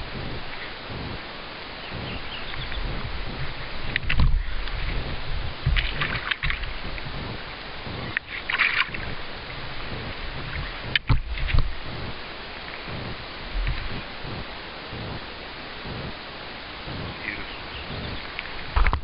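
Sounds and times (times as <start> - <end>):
steady hiss: 0.0 - 19.0
water splashing and dripping: 2.6 - 7.1, 8.0 - 11.8.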